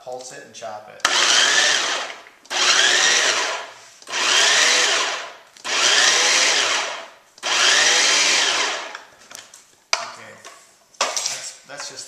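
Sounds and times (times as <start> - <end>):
food processor motor pulsing: 1.0 - 9.0.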